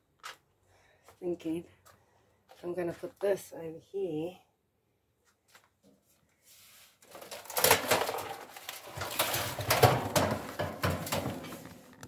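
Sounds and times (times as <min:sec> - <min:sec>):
metal panel knocking and rattling: 0:08.9 - 0:11.8.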